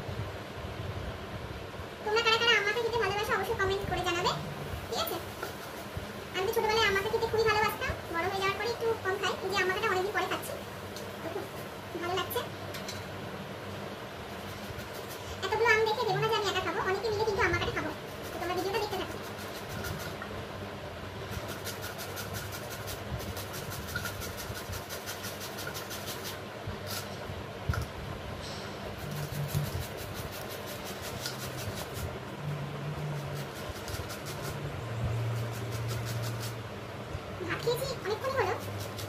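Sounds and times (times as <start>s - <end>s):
rasping of grater strokes: 14.3s - 15.7s, 17.8s - 20.2s, 21.2s - 27.1s, 29.0s - 32.1s, 33.1s - 34.6s, 35.2s - 36.6s, 37.7s - 39.0s
low hum: 26.4s - 39.0s.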